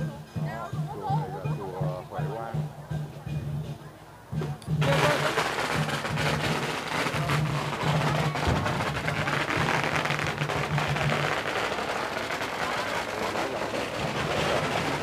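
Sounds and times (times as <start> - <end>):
crowd hubbub: 0.0 - 15.0
firecrackers crackling: 4.4 - 15.0.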